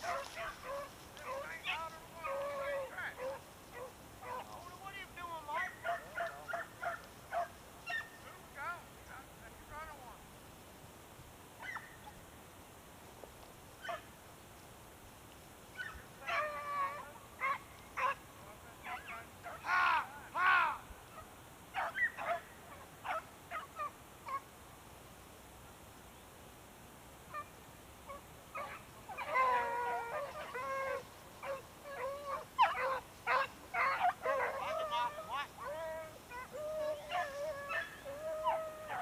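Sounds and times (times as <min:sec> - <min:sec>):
hounds baying: 0:00.0 - 0:04.7, 0:05.4 - 0:08.4, 0:15.8 - 0:18.2, 0:18.8 - 0:24.4, 0:28.1 - 0:39.0.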